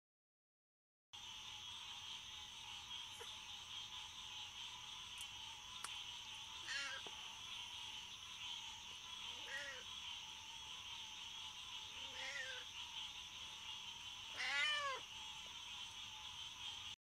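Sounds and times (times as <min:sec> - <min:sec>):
night insects humming: 0:01.2 - 0:17.0
cat meowing: 0:14.4 - 0:15.0.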